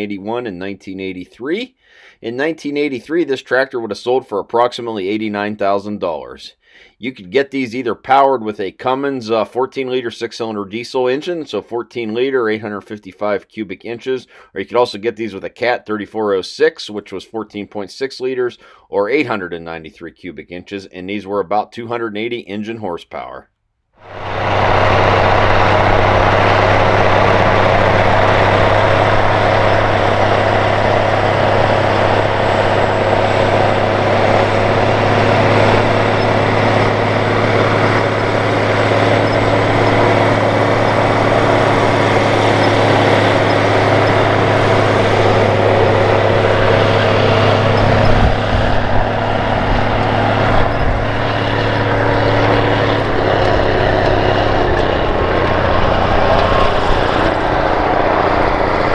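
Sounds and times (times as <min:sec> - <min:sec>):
tractor diesel engine droning: 0:24.0 - 0:58.9.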